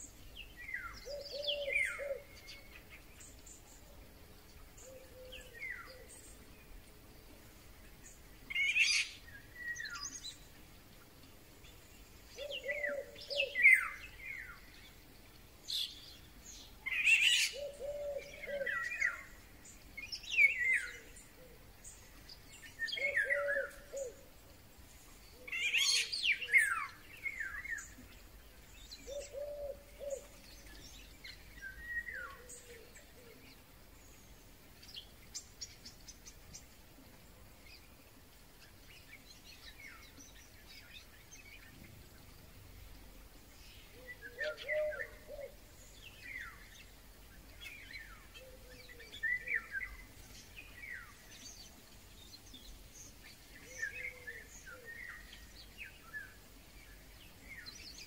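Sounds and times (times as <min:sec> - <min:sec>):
other birds calling: 0:00.0 - 0:03.9, 0:11.7 - 0:14.8, 0:15.7 - 0:33.8, 0:43.6 - 0:58.0
whistled birdsong phrases: 0:00.0 - 0:06.8, 0:08.0 - 0:10.6, 0:11.2 - 0:36.7, 0:37.5 - 0:58.0.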